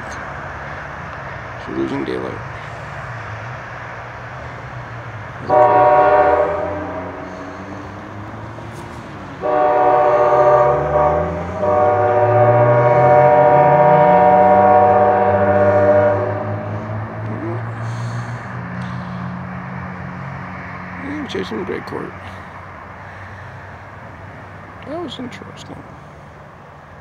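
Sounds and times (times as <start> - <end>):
diesel engine rumbling: 0.0 - 27.0
locomotive air horn blasts: 5.4 - 7.9, 9.4 - 17.1.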